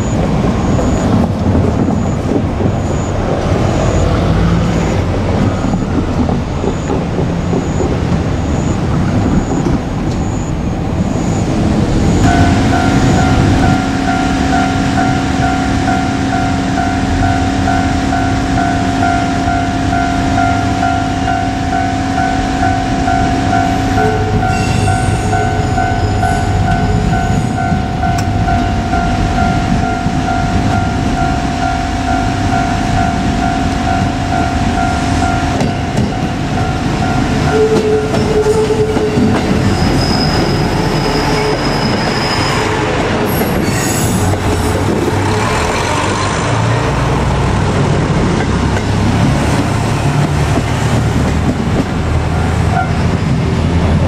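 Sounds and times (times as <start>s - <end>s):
level-crossing warning alarm: 0.0s - 46.5s
diesel railcar engine droning: 0.0s - 54.0s
train wheels clattering over rail joints: 5.0s - 10.2s, 47.8s - 52.6s
high wheel squeal: 7.6s - 46.3s.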